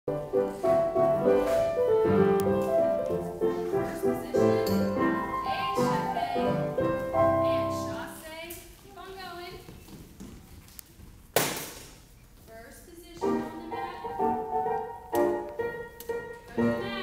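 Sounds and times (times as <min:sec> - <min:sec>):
piano music: 0:00.1 - 0:08.2, 0:13.2 - 0:17.0.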